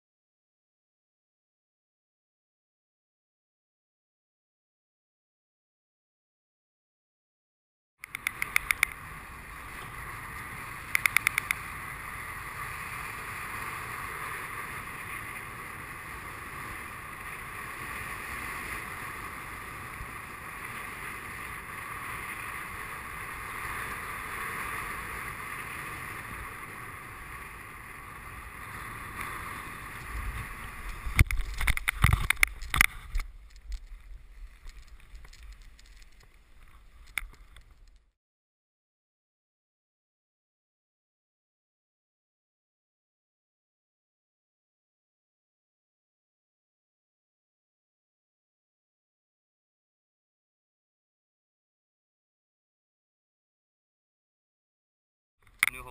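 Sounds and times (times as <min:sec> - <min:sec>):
quick clicks: 0:08.0 - 0:09.0, 0:10.9 - 0:11.6, 0:31.2 - 0:33.9
wind rushing over camera: 0:08.0 - 0:38.2.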